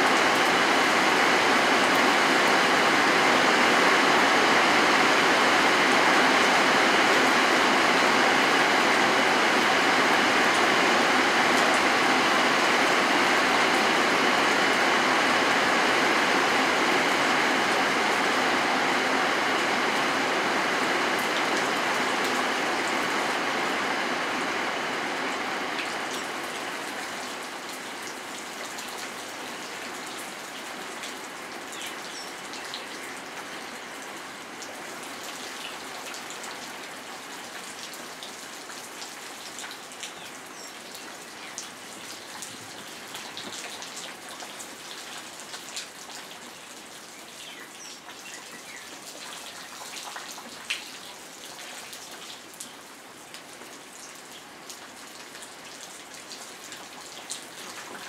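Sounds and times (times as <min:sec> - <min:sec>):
steady rain falling: 0:00.0 - 0:58.0.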